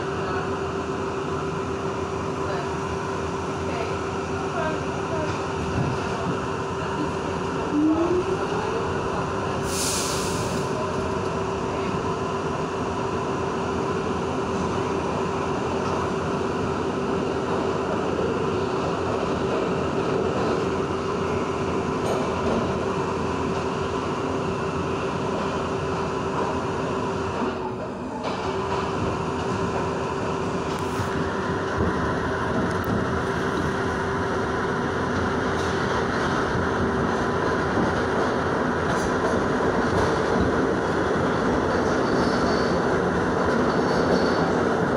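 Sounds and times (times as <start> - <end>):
subway wheels rumbling on track: 0.0 - 44.9
brief hiss: 9.7 - 10.7.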